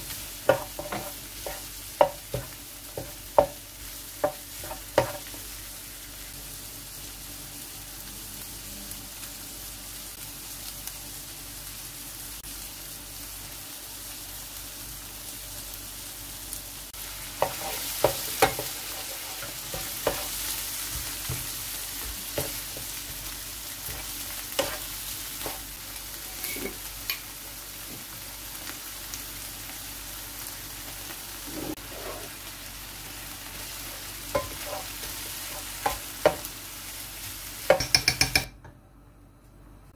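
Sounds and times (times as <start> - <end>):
food sizzling in frying pan: 0.0 - 38.5
wooden spatula knocking and scraping: 0.5 - 3.6, 4.2 - 5.2, 17.4 - 22.7.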